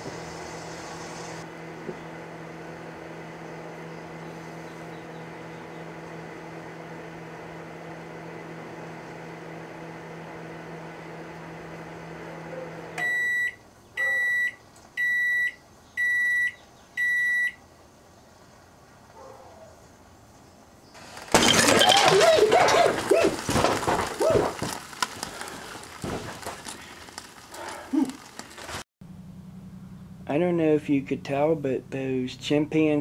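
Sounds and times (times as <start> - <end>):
microwave oven humming: 0.0 - 17.6, 29.0 - 33.0.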